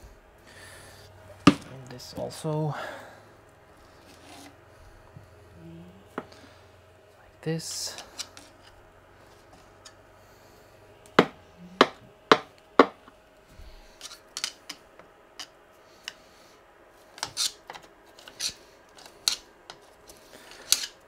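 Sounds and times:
light scraping: 0:03.8 - 0:04.6.

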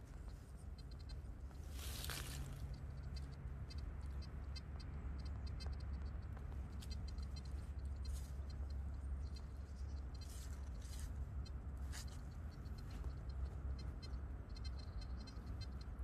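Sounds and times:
fingers scraping in soil and leaves: 0:01.5 - 0:02.8, 0:09.7 - 0:11.2.

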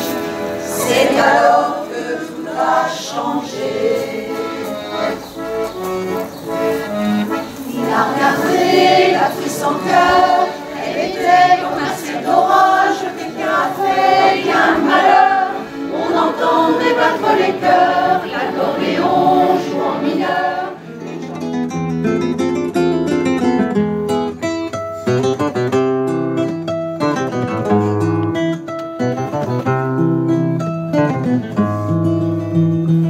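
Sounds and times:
choir singing: 0:00.0 - 0:21.2
accordion: 0:00.0 - 0:33.0.

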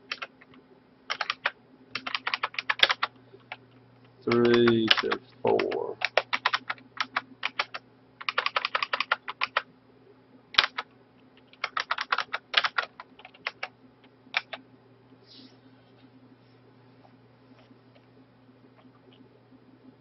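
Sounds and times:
typing on computer keyboard: 0:00.0 - 0:03.6, 0:04.3 - 0:09.6, 0:10.6 - 0:13.7, 0:14.3 - 0:14.6
faint low hum: 0:00.0 - 0:20.0.

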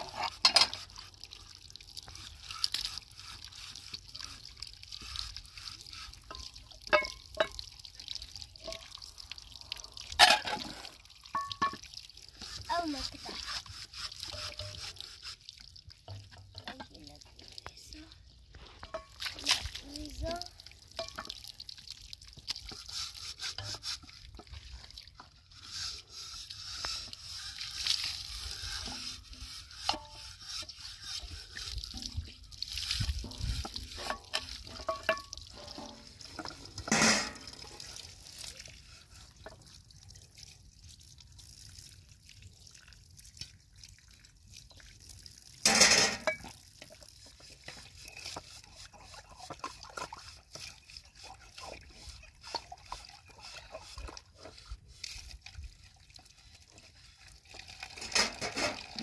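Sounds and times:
water splashing: 0:00.0 - 0:54.6
metal pans and utensils knocking: 0:00.1 - 0:00.8, 0:06.3 - 0:07.6, 0:10.2 - 0:10.7, 0:11.3 - 0:11.9, 0:21.0 - 0:21.4, 0:33.3 - 0:37.7, 0:45.7 - 0:46.5, 0:58.0 - 0:59.0.

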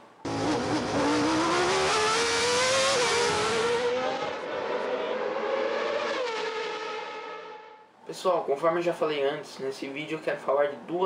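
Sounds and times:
race car engine at high revs: 0:00.2 - 0:07.8.

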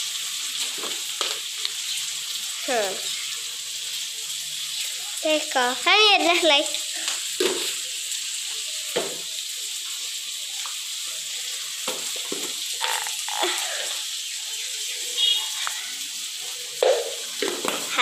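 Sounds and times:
food sizzling in oil: 0:00.0 - 0:18.0
containers knocking: 0:11.9 - 0:13.1.

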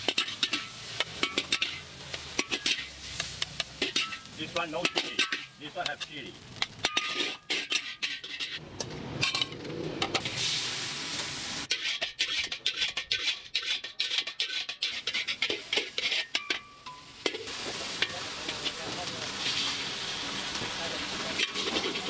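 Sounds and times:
metal spatula scraping a wok: 0:00.0 - 0:08.6, 0:11.7 - 0:22.0
plates and utensils clinking: 0:09.2 - 0:10.2.

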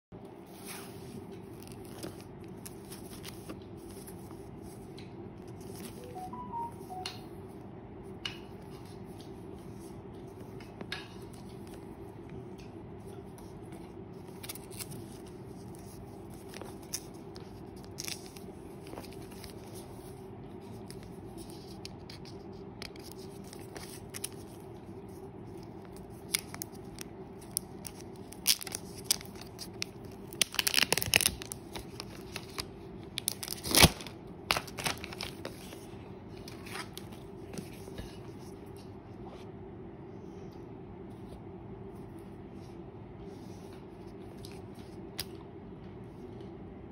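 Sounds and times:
steady low hum: 0:00.2 - 0:46.9
plastic wrap tearing and crinkling: 0:25.5 - 0:35.8.

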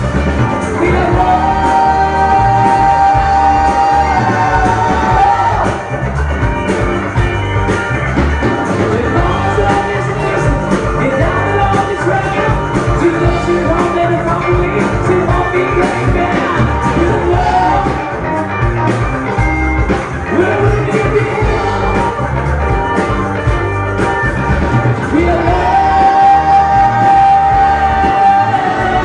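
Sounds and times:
live rock band: 0:00.0 - 0:29.0
singer singing into microphone: 0:00.6 - 0:05.9, 0:08.9 - 0:18.4, 0:25.1 - 0:29.0.

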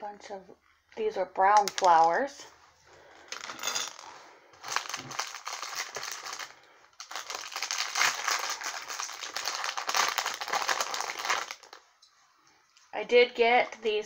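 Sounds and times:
plastic bags crinkling: 0:03.2 - 0:11.9.

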